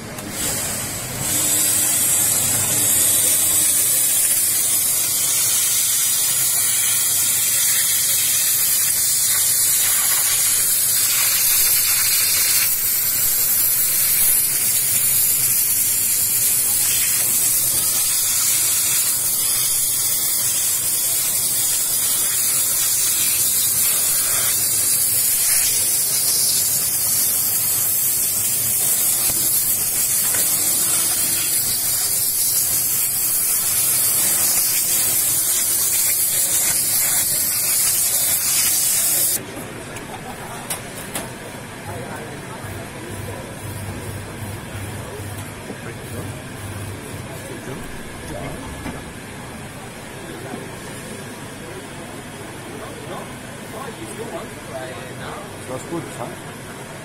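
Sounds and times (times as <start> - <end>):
steam hissing from nozzle: 0.4 - 39.4.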